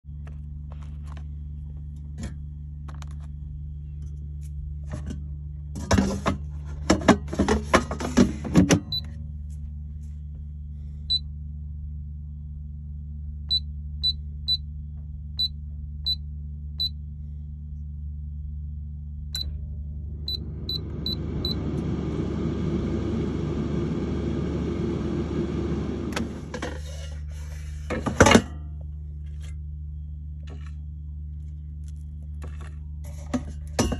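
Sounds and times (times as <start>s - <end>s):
low hum: 0.0s - 33.9s
fan whirring: 18.3s - 28.4s.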